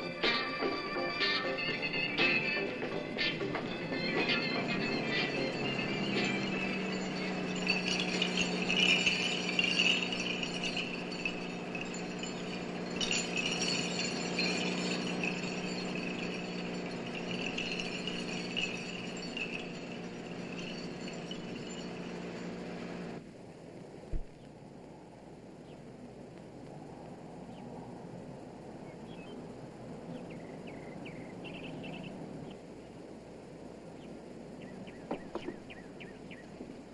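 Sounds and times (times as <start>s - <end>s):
low drone with chime-like notes: 0.0s - 23.2s, 28.8s - 32.6s.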